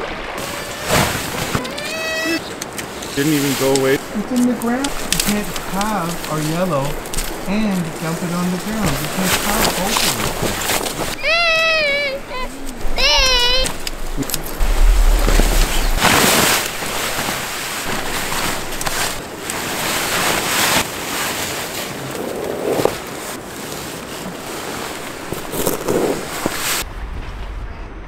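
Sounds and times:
nylon tent fly rustling: 0.0s - 26.8s
wind blowing on microphone: 0.0s - 28.0s.

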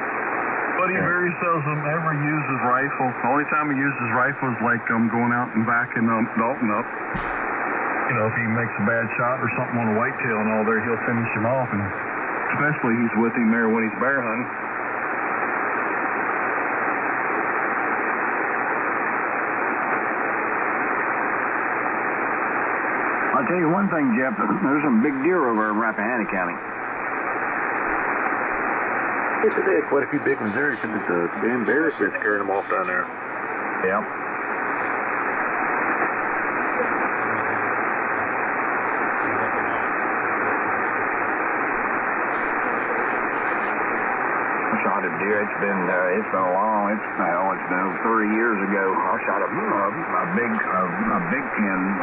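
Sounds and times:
radio static hiss: 0.0s - 52.0s.

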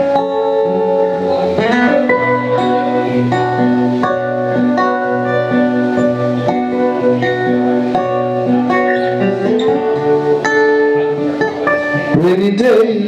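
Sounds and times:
acoustic guitars playing: 0.0s - 13.0s
person singing: 11.9s - 13.0s.

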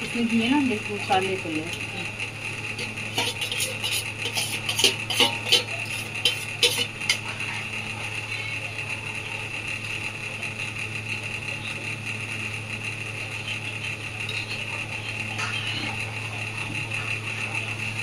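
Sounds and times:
machine hum: 0.0s - 18.0s.

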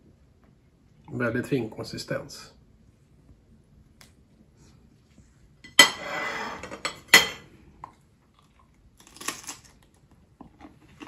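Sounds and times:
knife clinking on ceramic plate: 5.7s - 7.4s
cracker crunch: 7.8s - 11.0s.

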